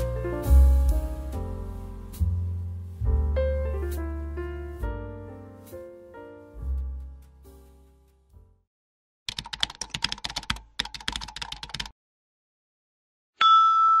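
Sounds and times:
piano music: 0:00.0 - 0:08.6.

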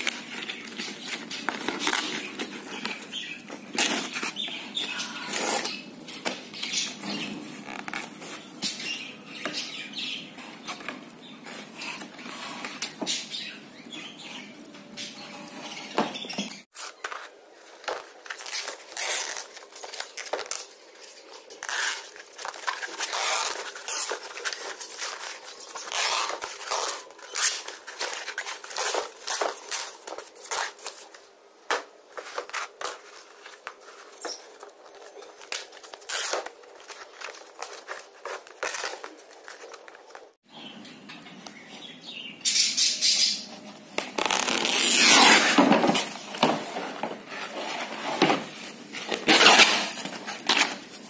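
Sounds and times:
canvas ripping: 0:00.0 - 0:04.5, 0:18.2 - 0:20.6, 0:21.6 - 0:31.0, 0:35.5 - 0:39.5, 0:44.0 - 0:46.5, 0:49.0 - 0:50.9.

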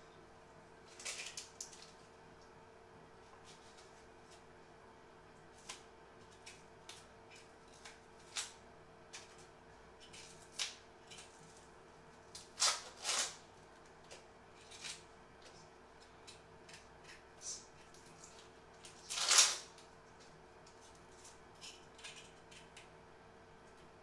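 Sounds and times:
faint hum: 0:00.0 - 0:24.0
onion skin crackling: 0:16.2 - 0:19.8.

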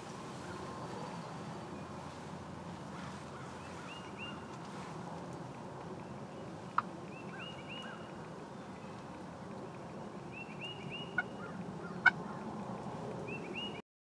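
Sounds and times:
sharp turkey calls: 0:10.9 - 0:12.2
turkeys calling: 0:10.9 - 0:12.2.

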